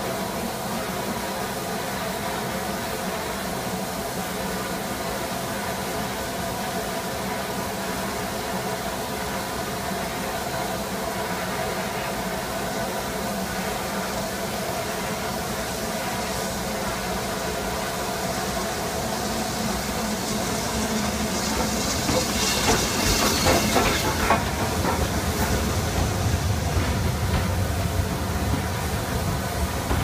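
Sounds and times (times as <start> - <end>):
steam hissing: 0.0 - 30.0
train coaches rumbling by: 0.0 - 30.0
locomotive wheels clicking and knocking: 20.6 - 30.0.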